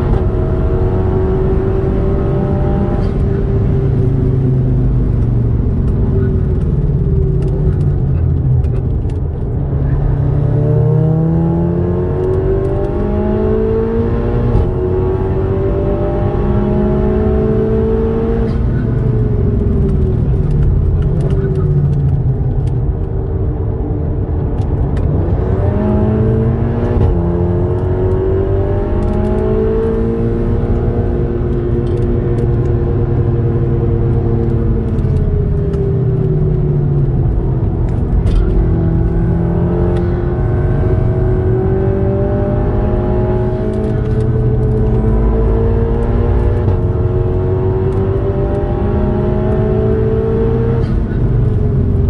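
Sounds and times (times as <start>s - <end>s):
car engine revving: 0.0s - 23.0s, 24.6s - 52.0s
tyre and road rumble: 0.0s - 52.0s.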